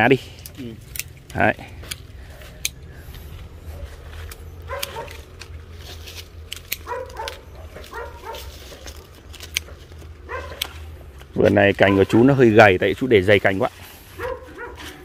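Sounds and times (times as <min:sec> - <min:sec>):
pruning shears snipping: 0:00.3 - 0:13.1, 0:14.2 - 0:15.0
dog barking: 0:04.6 - 0:05.2, 0:06.8 - 0:08.6, 0:10.3 - 0:10.7, 0:11.8 - 0:12.3, 0:14.2 - 0:15.0.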